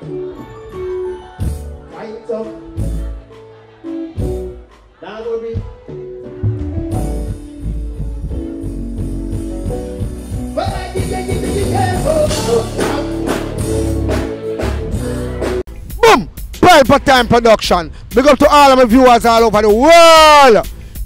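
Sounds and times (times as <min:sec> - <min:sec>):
live music with strong bass: 0:00.0 - 0:21.0
man singing: 0:10.5 - 0:13.7.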